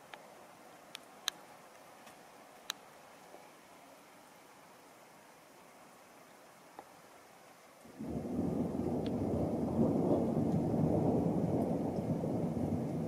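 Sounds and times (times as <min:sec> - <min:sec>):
thunder clap and rumble: 0:07.9 - 0:13.0.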